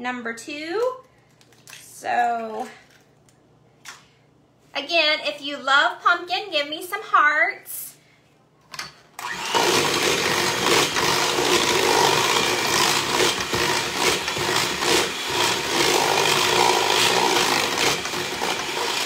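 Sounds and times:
electric hand mixer running: 9.2s - 19.0s
beaters churning thick batter: 9.3s - 19.0s.

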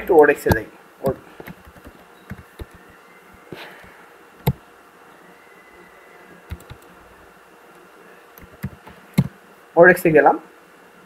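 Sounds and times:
faint steady hiss: 0.0s - 11.0s
computer keyboard keystrokes: 0.5s - 2.9s, 6.5s - 6.9s, 8.4s - 9.3s.

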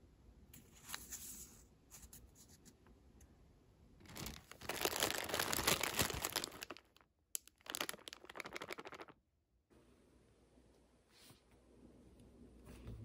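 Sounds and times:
packaging crinkling: 4.0s - 9.2s.

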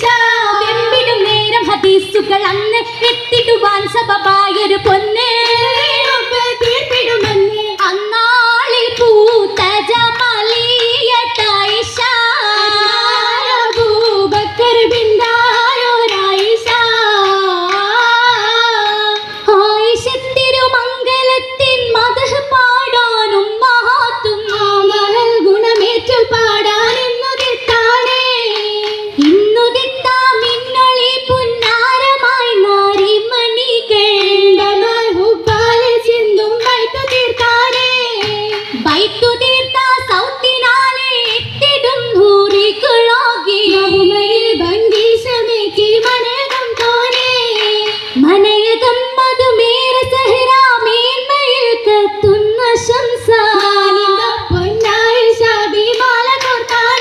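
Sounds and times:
sharp hand-claps: 0.0s - 20.8s, 23.9s - 57.0s
women singing: 0.0s - 57.0s.

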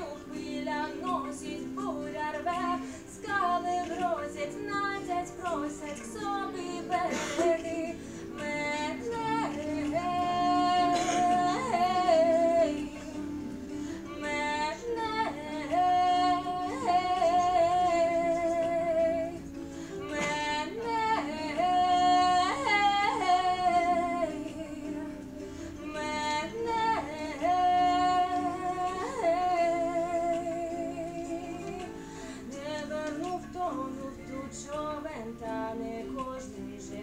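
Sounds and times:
quiet steady accompaniment: 0.0s - 37.0s
woman singing slow melody: 0.0s - 37.0s.

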